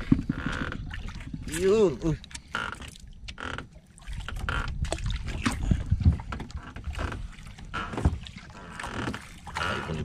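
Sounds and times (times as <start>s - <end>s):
wind on microphone: 4.1s - 7.0s
knocks against small boat: 7.8s - 8.2s.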